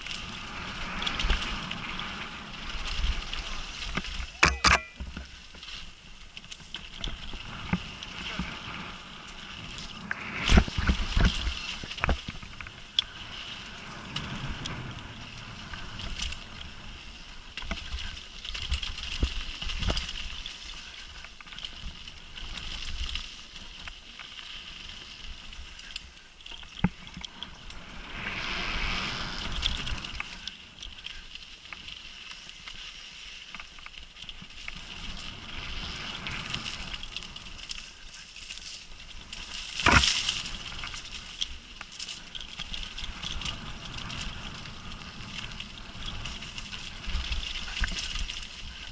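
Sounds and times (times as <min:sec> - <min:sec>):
wind on microphone: 0:00.0 - 0:24.0, 0:24.7 - 0:48.9
bike rattling over bumps: 0:00.0 - 0:48.9
bike tyre noise on dirt: 0:00.0 - 0:48.9.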